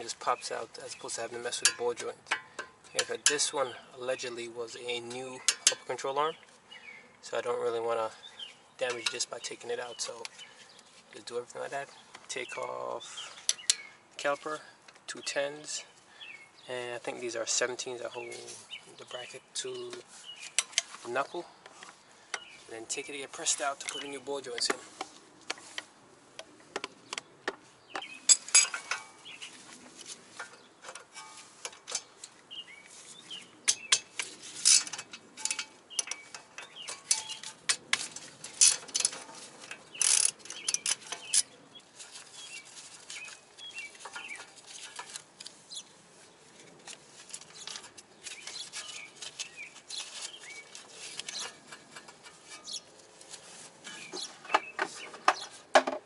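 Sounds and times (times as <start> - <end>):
tools and metal parts clinking: 1.4 - 3.7, 5.1 - 6.0, 8.8 - 9.4, 28.0 - 29.4, 30.3 - 32.4, 33.7 - 45.5, 46.6 - 56.0.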